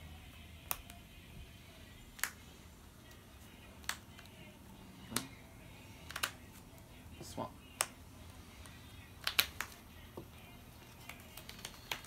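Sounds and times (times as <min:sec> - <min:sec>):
cards clicking on a table: 0:06.0 - 0:06.6, 0:08.6 - 0:10.3, 0:10.9 - 0:12.0.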